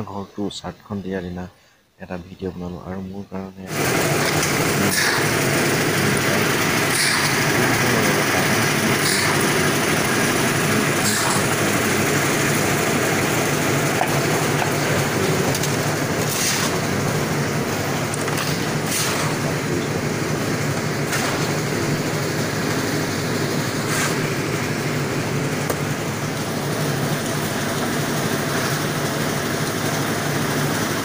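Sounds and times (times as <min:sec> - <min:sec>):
concrete mixer engine churning: 0:03.6 - 0:31.0
hissy scrapes: 0:23.8 - 0:24.2.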